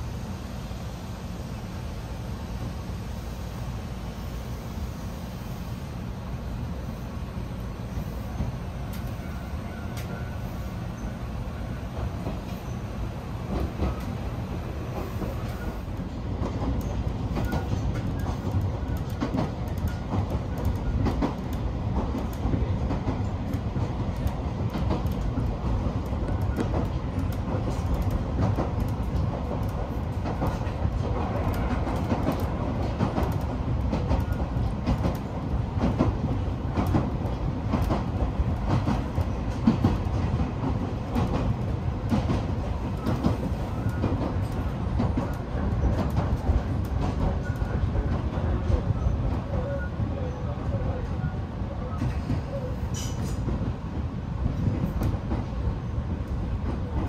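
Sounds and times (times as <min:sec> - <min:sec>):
electric train rumbling: 0:00.0 - 0:57.0
wheels clicking over rail joints: 0:14.9 - 0:48.9.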